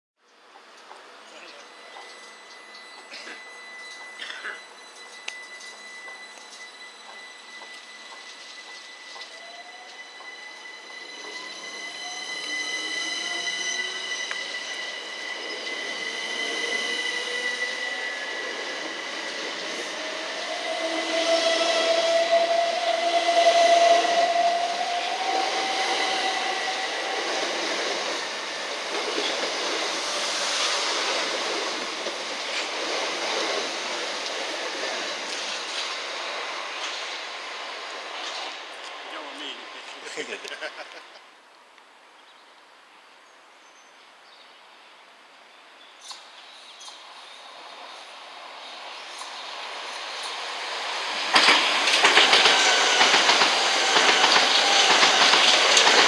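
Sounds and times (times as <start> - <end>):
wheels rumbling on rails: 0.4 - 37.3, 48.9 - 56.0
electric train motor whine: 0.9 - 32.6
long squeal: 1.2 - 38.6, 47.4 - 56.0.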